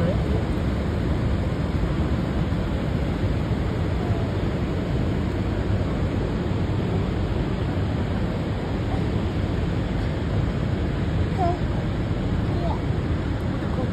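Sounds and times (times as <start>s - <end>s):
churning river water: 0.0s - 13.9s
waterfall roaring: 0.0s - 13.9s.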